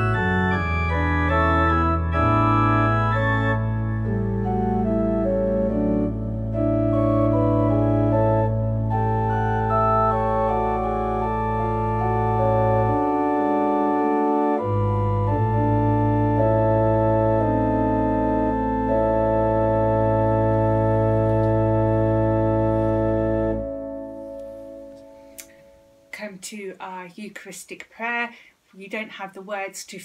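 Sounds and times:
slow quiet organ music: 0.0s - 26.1s.

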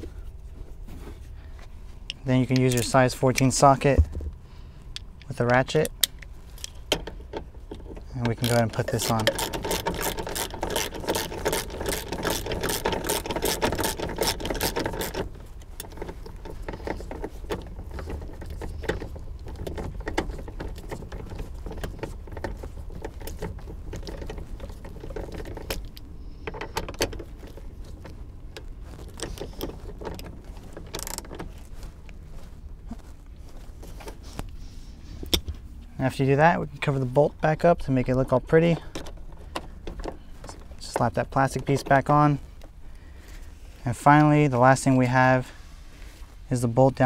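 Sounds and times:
low steady rumble: 0.0s - 47.0s
socket ratchet clicking: 8.3s - 17.7s.

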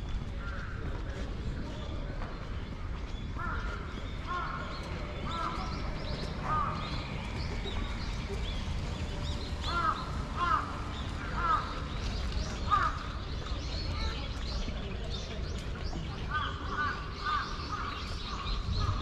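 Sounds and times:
crow cawing: 9.7s - 11.8s.

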